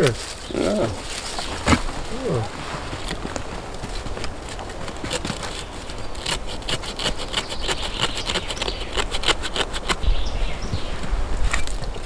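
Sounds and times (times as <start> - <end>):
knife shaving wood: 0.8 - 10.2.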